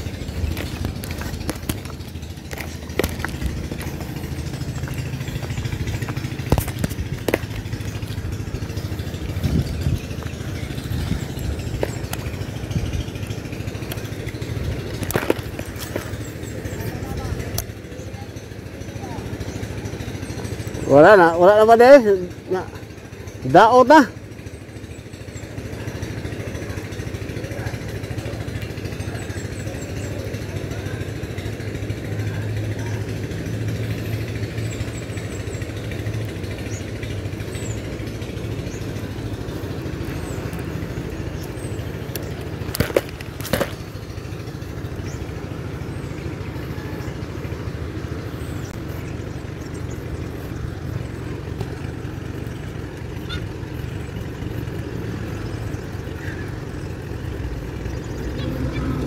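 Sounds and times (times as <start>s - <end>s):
footsteps on loose stones: 0.0s - 12.6s, 13.8s - 16.4s, 41.3s - 43.9s
small engine humming: 0.0s - 59.0s.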